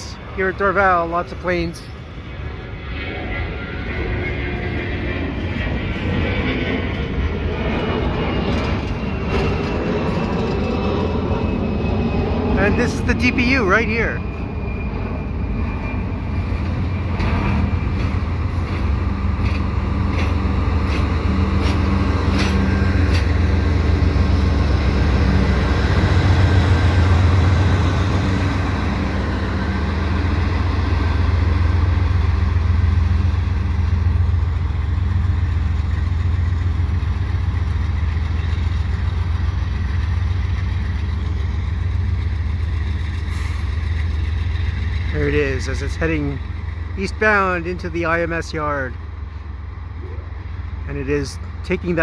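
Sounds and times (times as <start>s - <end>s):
locomotive engine drone: 0.0s - 52.0s
train wheels clicking: 16.5s - 27.8s.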